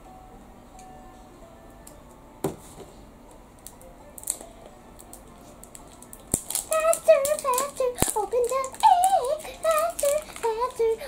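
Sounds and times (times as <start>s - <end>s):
faint background music: 0.0s - 11.0s
scissors snipping wrapper: 5.0s - 10.8s.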